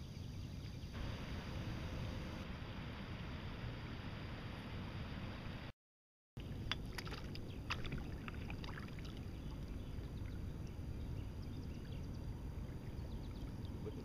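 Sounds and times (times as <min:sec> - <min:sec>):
water splashing from thrashing fish: 0:06.8 - 0:09.7.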